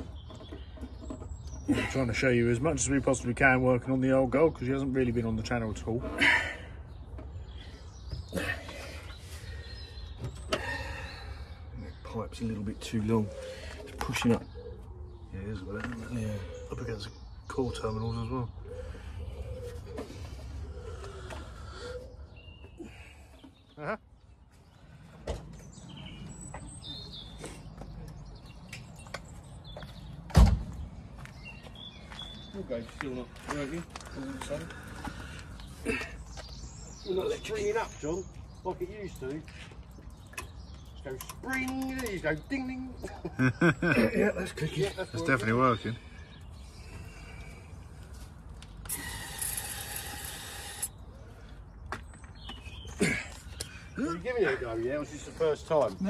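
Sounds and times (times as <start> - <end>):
birds chirping: 0.0 - 56.0
heavy door thump: 30.3 - 30.8.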